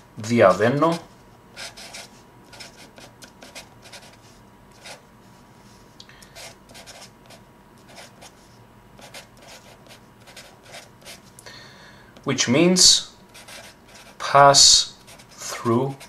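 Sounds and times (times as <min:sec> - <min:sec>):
marker scratching on paper: 0:00.6 - 0:05.0, 0:06.4 - 0:08.4, 0:09.0 - 0:11.2, 0:13.4 - 0:14.2.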